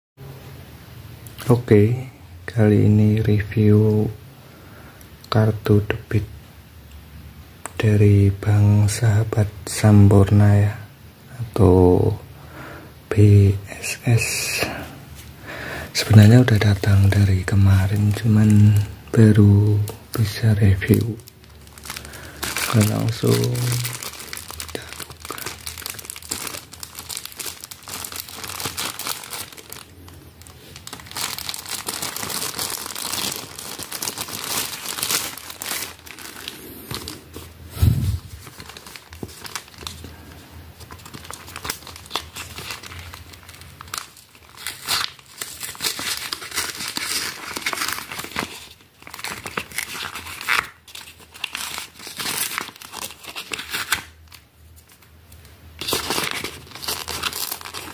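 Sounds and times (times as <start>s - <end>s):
plastic packaging crinkling: 15.9s - 57.9s.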